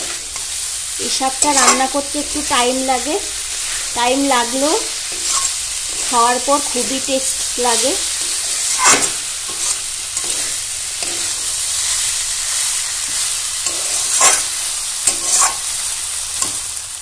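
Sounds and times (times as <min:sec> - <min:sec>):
vegetables sizzling in a pan: 0:00.0 - 0:17.0
metal spatula scraping a pan: 0:01.2 - 0:02.0, 0:03.5 - 0:06.9, 0:07.6 - 0:15.8.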